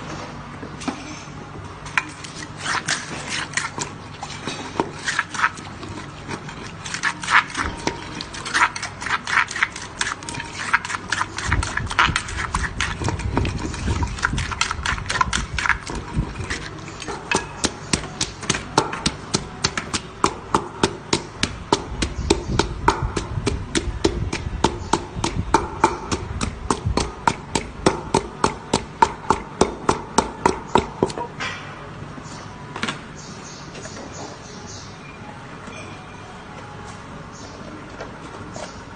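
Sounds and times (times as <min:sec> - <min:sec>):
wooden pestle pounding in mortar: 0:06.3 - 0:31.3.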